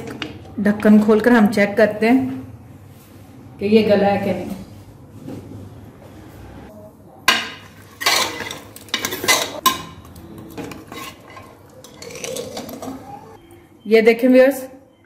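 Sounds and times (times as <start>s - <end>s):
metal ladle scraping pot: 7.6s - 13.4s.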